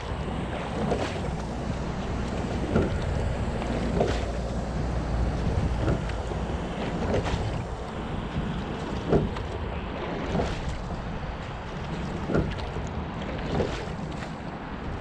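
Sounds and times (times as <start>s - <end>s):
water washing along hull: 0.0s - 15.0s
wind on microphone: 0.0s - 15.0s
oars knocking: 0.7s - 7.9s, 8.5s - 9.6s.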